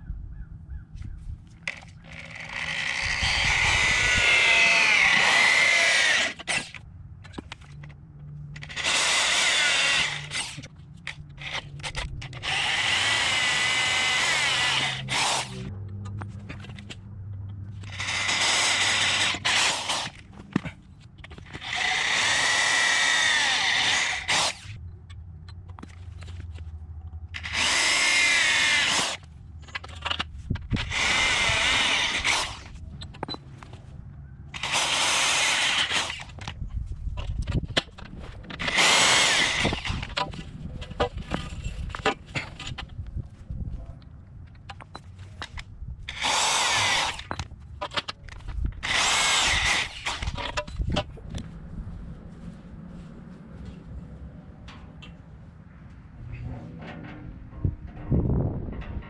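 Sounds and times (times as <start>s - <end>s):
electric drill boring through metal: 1.7s - 6.8s, 8.6s - 10.7s, 11.4s - 15.7s, 17.8s - 20.2s, 21.4s - 24.7s, 27.4s - 29.3s, 30.8s - 32.8s, 34.6s - 36.4s, 38.6s - 40.3s, 46.1s - 47.4s, 48.8s - 50.6s.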